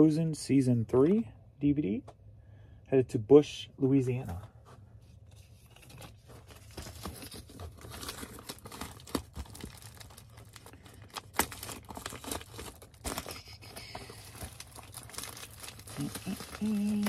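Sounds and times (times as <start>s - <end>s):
packaging crinkling and tearing: 5.6s - 17.0s.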